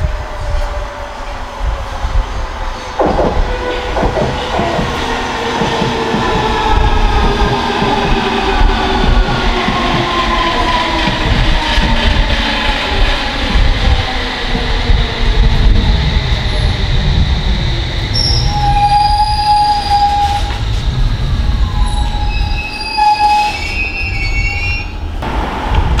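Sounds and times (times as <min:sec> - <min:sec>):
train wheels rumbling on rail: 0:00.0 - 0:26.0
wheel squeals: 0:21.8 - 0:25.0.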